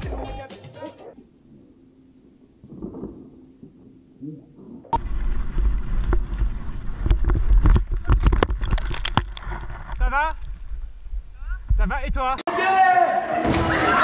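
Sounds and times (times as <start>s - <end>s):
wind buffeting camera: 4.6s - 12.4s.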